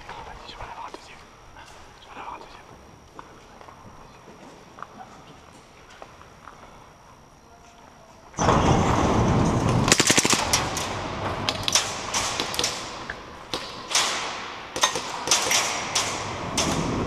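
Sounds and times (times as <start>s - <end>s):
airsoft gun shots: 9.8s - 17.0s.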